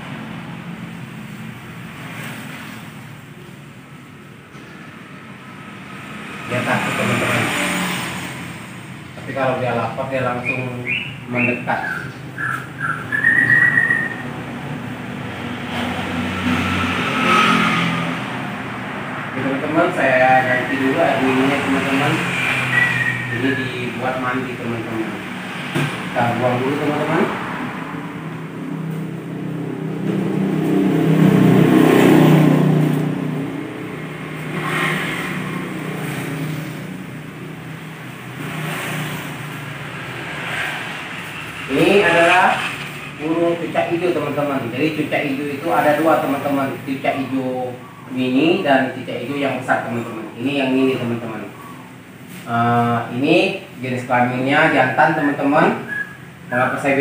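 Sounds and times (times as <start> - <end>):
passing motor vehicle drone: 5.0 - 11.0, 12.6 - 45.0
whistled note: 10.4 - 14.2, 22.7 - 23.7, 55.8 - 56.2.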